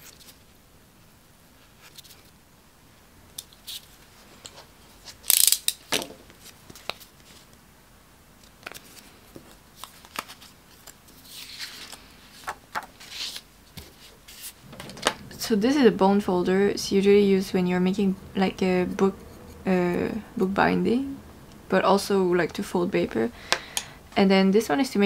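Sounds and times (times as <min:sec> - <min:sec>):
paper rustling: 0:08.4 - 0:15.2.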